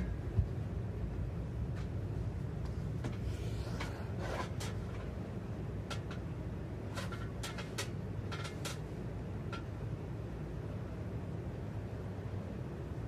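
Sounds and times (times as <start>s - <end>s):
steady low hum: 0.0s - 13.0s
plastic clicks and rattles: 5.8s - 6.3s, 6.9s - 8.9s.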